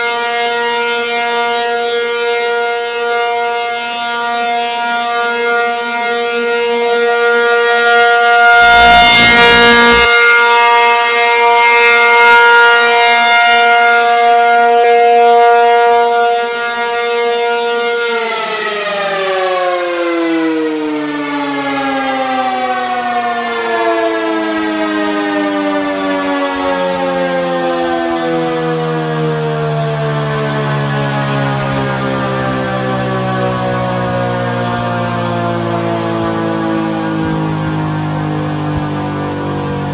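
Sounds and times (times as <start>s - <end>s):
warning siren winding down: 0.0s - 39.9s.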